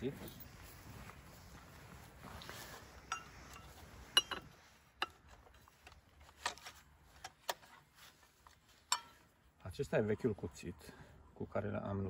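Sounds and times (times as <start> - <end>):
wrench clinking on metal: 3.1 - 5.2.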